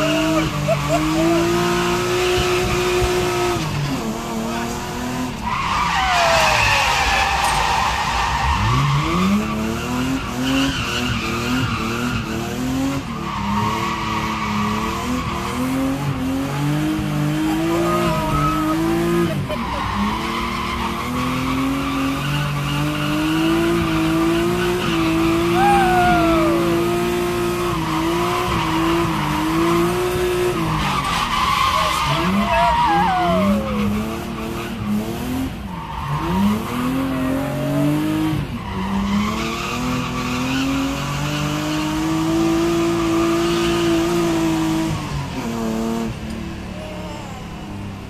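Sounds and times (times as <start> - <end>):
car engine revving hard: 0.0 - 46.8
tyres squealing: 13.3 - 22.6.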